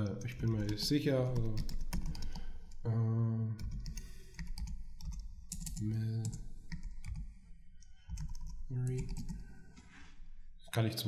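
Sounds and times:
keyboard typing: 0.1 - 2.8, 3.6 - 9.5
man's wordless vocal sounds: 2.8 - 3.6.

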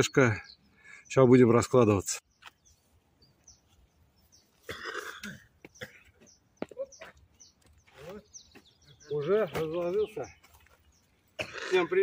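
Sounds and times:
man coughing: 4.6 - 6.2, 11.4 - 12.0.

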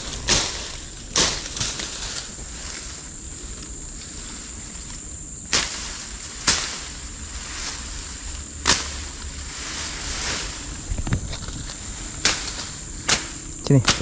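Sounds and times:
machete chopping branches: 0.0 - 2.3, 5.5 - 7.0, 8.6 - 9.2, 9.8 - 14.0
high-pitched insect drone: 0.0 - 14.0.

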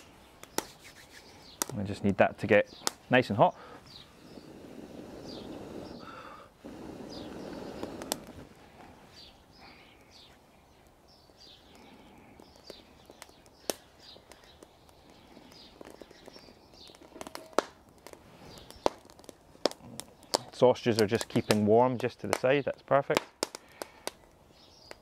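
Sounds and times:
birds chirping: 0.0 - 25.0
fire crackling and popping: 0.0 - 25.0.

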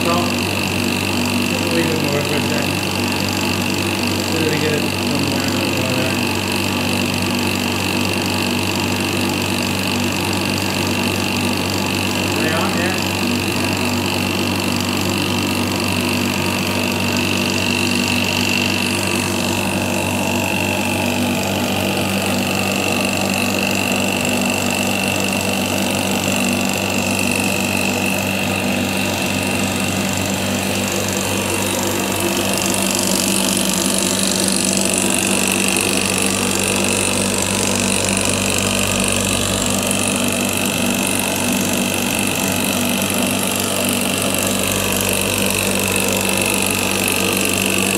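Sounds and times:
injection pump humming and whining: 0.0 - 47.9.

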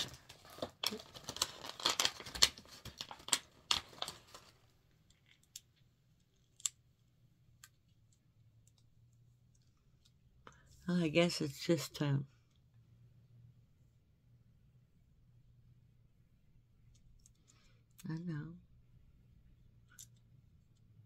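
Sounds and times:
plastic packaging rustling and crinkling: 0.0 - 5.3.

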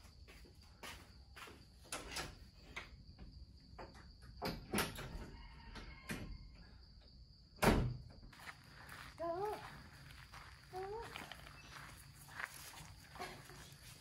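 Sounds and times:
footsteps: 0.0 - 1.7, 8.3 - 14.0
insects droning: 0.0 - 14.0
door shutting with a thud: 7.6 - 8.2.

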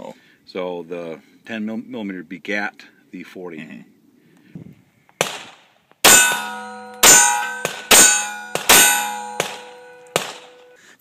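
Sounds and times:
pistol shots: 5.2 - 10.7
steel target clanging: 6.0 - 10.8.

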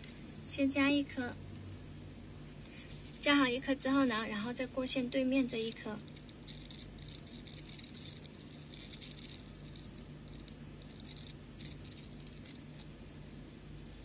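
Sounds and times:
beads clicking together: 5.6 - 12.9.

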